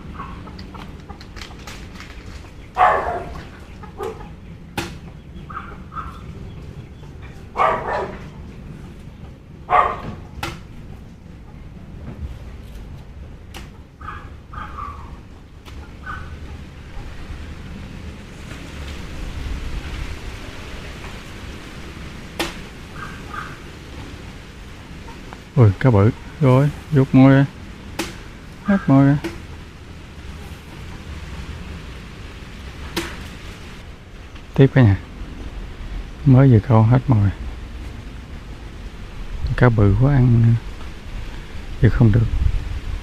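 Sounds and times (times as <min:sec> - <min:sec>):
wind buffeting microphone: 0:00.0 - 0:43.0
dog barking: 0:02.8 - 0:04.3, 0:05.5 - 0:06.3, 0:07.5 - 0:08.3, 0:09.7 - 0:10.2, 0:14.0 - 0:15.2, 0:16.0 - 0:16.4, 0:22.9 - 0:23.6.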